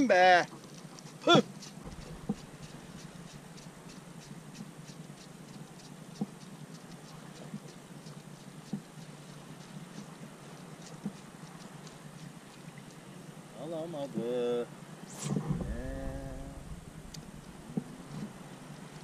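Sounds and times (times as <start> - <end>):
faint light ticking and pattering: 0.0 - 13.4
low steady hum: 0.0 - 19.0.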